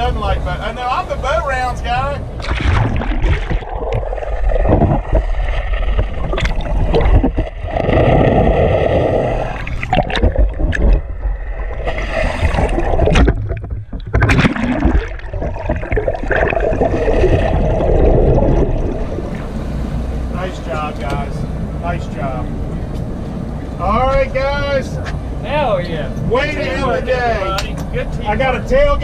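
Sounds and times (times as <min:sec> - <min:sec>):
water rushing and gurgling: 0:00.0 - 0:22.9
low rumble: 0:01.5 - 0:29.0.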